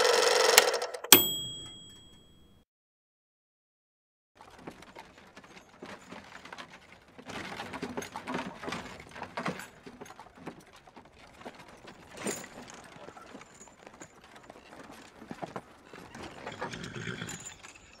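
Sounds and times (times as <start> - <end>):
horse hooves on rocky ground: 4.4 - 18.0.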